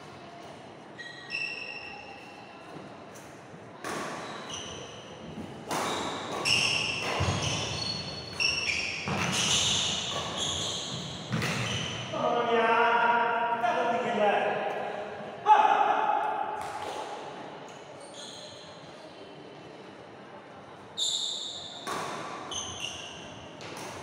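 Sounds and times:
shoes squeaking on wooden court: 1.0s - 2.3s, 3.9s - 12.1s, 17.9s - 18.8s, 21.0s - 24.0s
racket hitting shuttlecock: 5.7s - 7.8s, 21.8s - 22.5s
man speaking: 12.1s - 16.1s.

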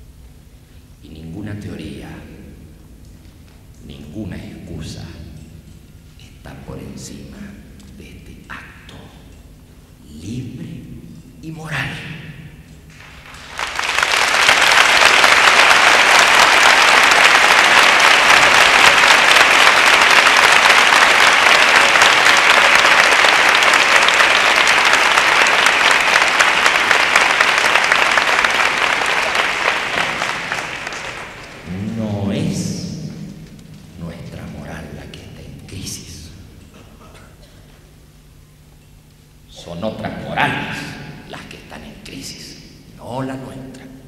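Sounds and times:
large audience applauding: 12.9s - 33.6s.

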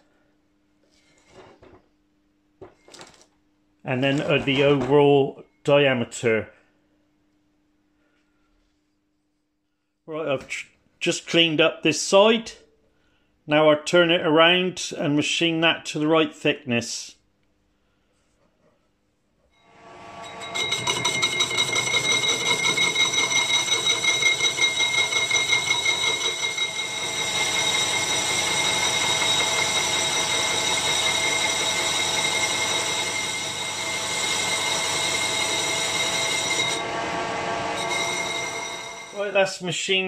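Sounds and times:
metal lathe cutting with high whine: 19.6s - 39.3s.

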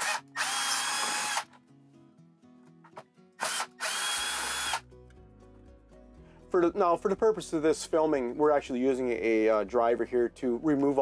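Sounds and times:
cordless drill motor whine: 0.0s - 1.4s, 3.4s - 4.8s.

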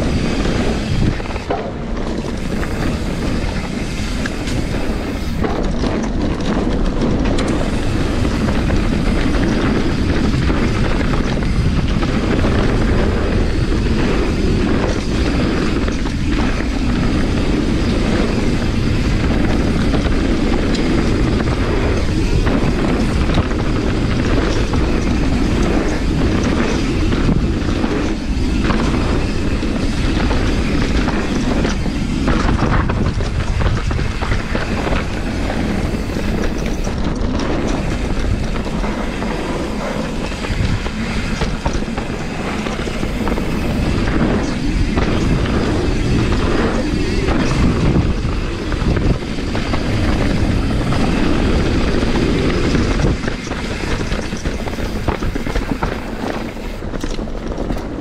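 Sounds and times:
bike rattling and knocking: 0.0s - 58.0s
tyres rumbling over dirt: 0.0s - 58.0s.

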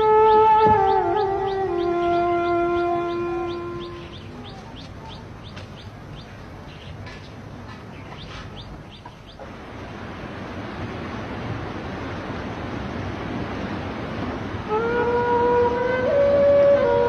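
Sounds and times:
birds chirping: 0.0s - 13.4s
flowing river rushing: 0.0s - 17.0s.

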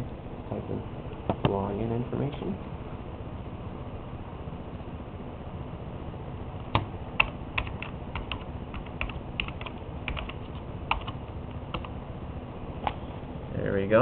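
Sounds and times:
keyboard typing clicks: 6.7s - 12.0s.

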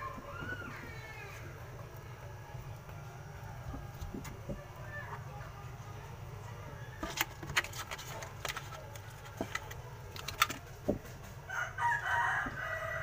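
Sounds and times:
clicks and knocks on plywood box: 7.0s - 11.2s
rooster crowing: 11.5s - 13.0s.

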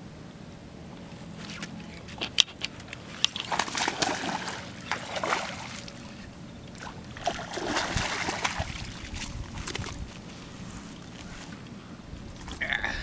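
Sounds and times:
fish splashing at water surface: 3.1s - 6.2s, 6.8s - 9.9s.

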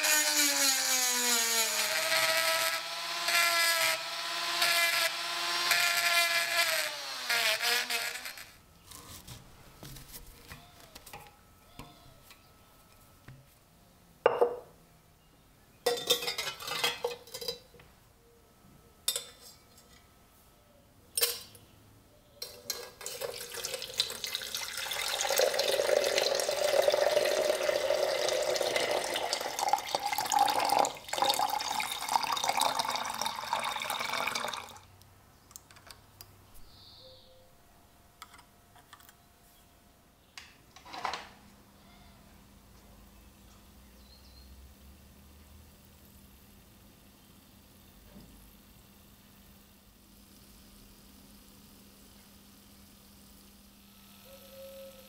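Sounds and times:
rotary tool grinding metal: 0.0s - 9.2s
water pouring into a glass: 23.0s - 34.9s.

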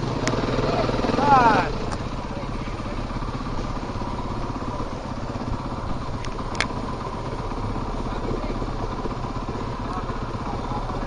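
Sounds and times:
dirt bike engine idling: 0.0s - 11.0s.

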